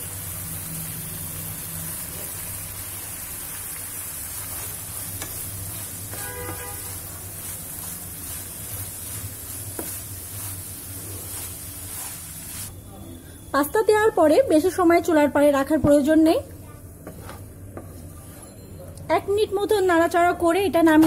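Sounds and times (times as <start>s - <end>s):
sauce sizzling in a frying pan: 0.0s - 12.7s
pasta stirred with wooden spatula: 3.6s - 12.7s, 16.9s - 18.7s.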